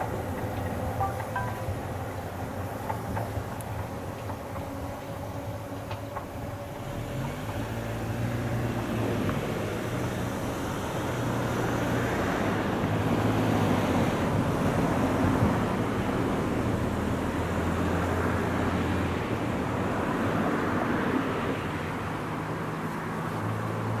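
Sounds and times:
low steady hum: 0:00.0 - 0:06.8
noisy hiss: 0:00.0 - 0:18.9.

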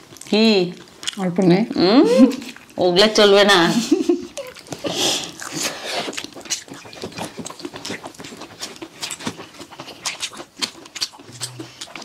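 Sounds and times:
chewing and lip smacks: 0:00.0 - 0:01.2, 0:04.3 - 0:12.0.

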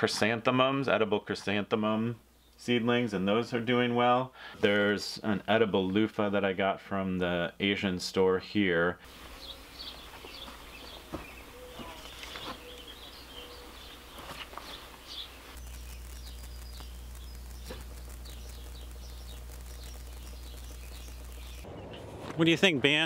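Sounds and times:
songbirds chirping: 0:00.1 - 0:23.0
steady low hum: 0:09.1 - 0:22.2.

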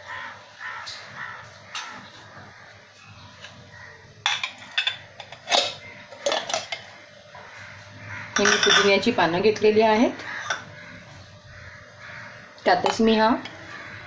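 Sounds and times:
steel jar and bowls clinking: 0:04.2 - 0:06.9, 0:08.3 - 0:09.1.

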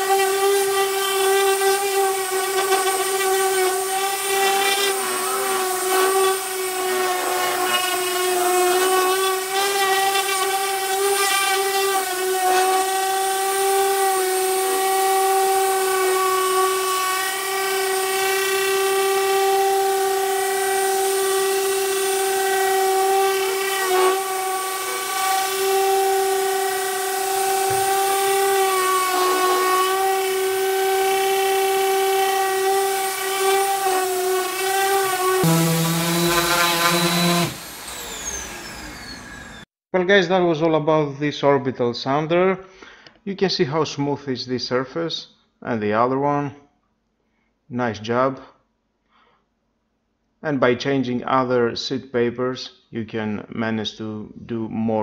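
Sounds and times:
orbital sander whining: 0:00.0 - 0:39.7.

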